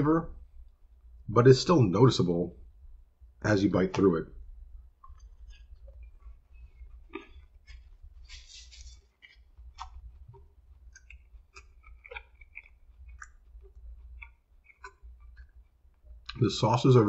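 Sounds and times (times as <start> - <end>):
faint low hum: 0.0 - 17.0
person chewing food: 4.6 - 16.4.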